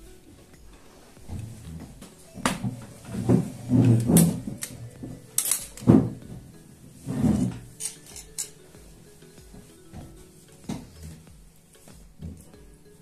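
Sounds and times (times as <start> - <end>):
dishes and utensils clinking: 1.3 - 8.9.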